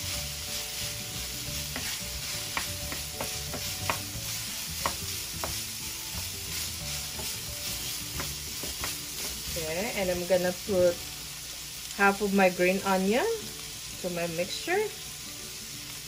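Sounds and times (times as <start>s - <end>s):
wooden spoon scraping pan: 0.0s - 9.9s
meat sizzling in a frying pan: 0.0s - 16.0s.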